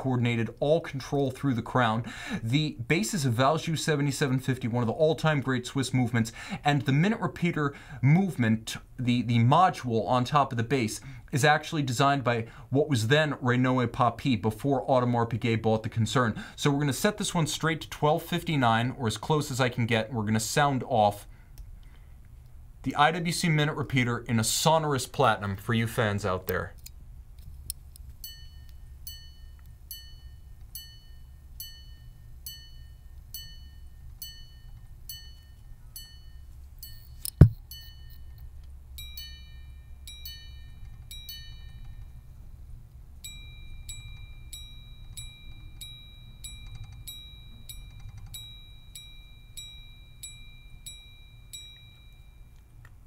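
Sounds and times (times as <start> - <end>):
watch chiming on gongs: 28.2 - 42.6, 43.2 - 52.7
sharp knock: 37.4 - 37.6.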